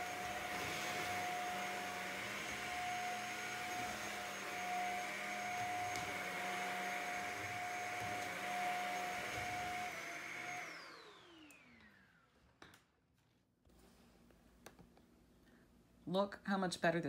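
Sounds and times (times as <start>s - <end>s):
vacuum cleaner running: 0.0s - 12.4s.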